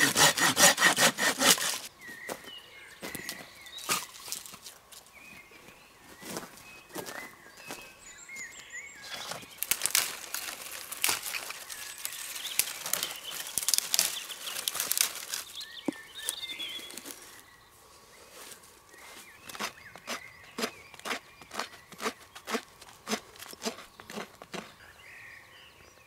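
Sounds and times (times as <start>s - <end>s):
dry twigs snapping and rustling: 9.1s - 17.4s.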